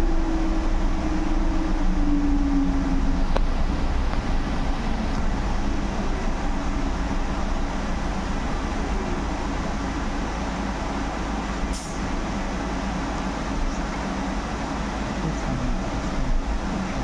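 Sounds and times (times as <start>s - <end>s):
bus road rumble: 0.0s - 17.0s
short air hiss: 11.7s - 12.0s.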